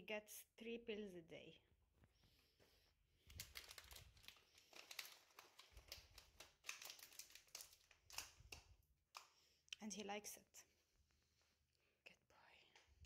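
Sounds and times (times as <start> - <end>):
plastic bag crinkling: 3.2 - 8.8.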